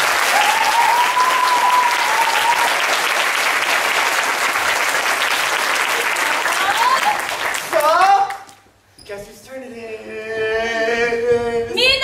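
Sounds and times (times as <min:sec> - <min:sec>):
crowd clapping: 0:00.0 - 0:08.6.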